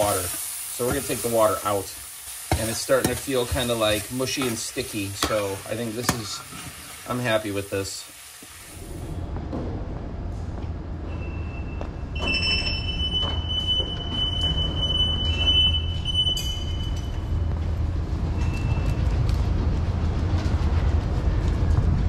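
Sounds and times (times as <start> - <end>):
high-pitched squeal: 8.7 - 17.5
low rumble: 8.7 - 22.0.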